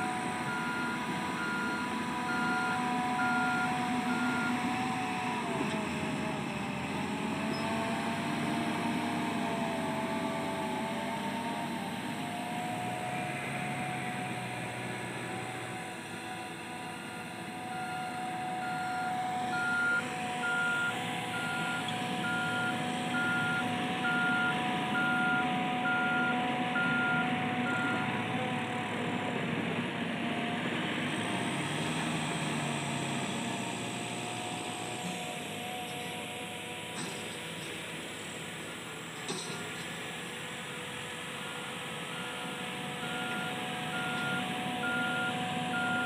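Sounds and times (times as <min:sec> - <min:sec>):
reversing alarm beeping: 0:00.0 - 0:05.2, 0:16.0 - 0:28.2, 0:40.6 - 0:46.0
heavy machinery engines running: 0:00.0 - 0:46.0.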